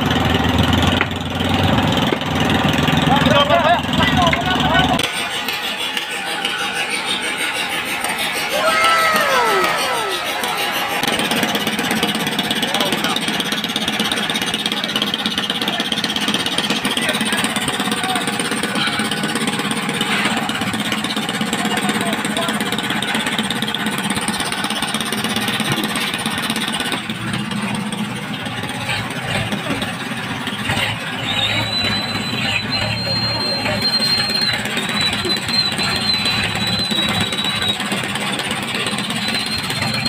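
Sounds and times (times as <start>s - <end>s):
boat engine running: 0.0s - 40.0s
thin high steady tone: 5.2s - 11.9s.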